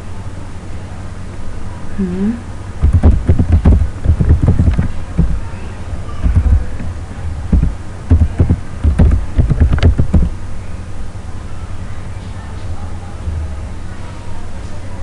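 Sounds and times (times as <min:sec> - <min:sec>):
keyboard key taps: 0:02.8 - 0:05.4, 0:07.5 - 0:10.3.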